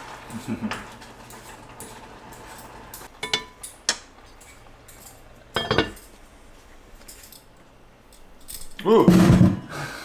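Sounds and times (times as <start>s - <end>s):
utensils clinking against dishes: 0.3s - 6.2s
ringing kitchen clatter: 4.9s - 6.1s.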